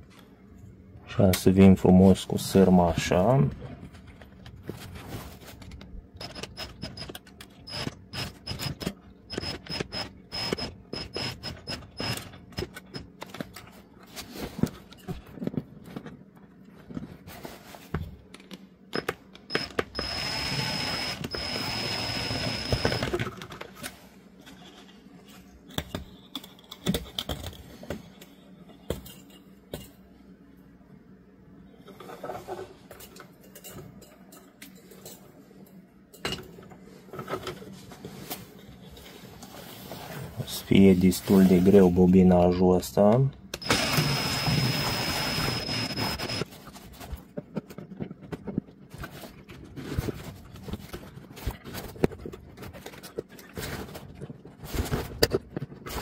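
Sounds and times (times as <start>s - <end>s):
drill chuck ratcheting clicks: 19.5s - 23.1s.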